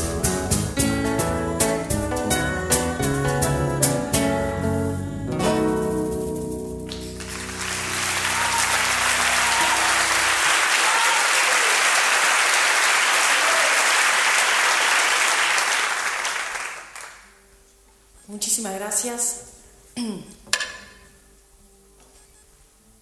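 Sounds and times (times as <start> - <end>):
audience applauding: 6.9 - 17.3.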